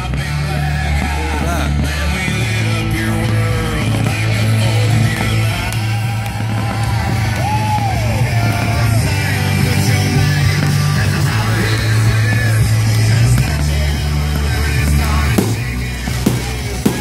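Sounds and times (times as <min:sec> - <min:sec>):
rock music with singing: 0:00.0 - 0:17.0.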